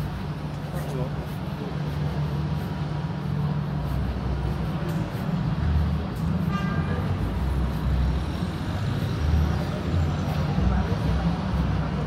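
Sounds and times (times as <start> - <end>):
car engines humming: 0.0 - 12.0.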